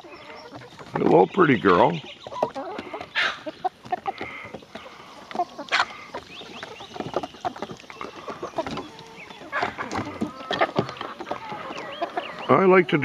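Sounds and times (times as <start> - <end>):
chickens clucking: 0.0 - 13.0
chickens pecking on wood: 0.0 - 13.0.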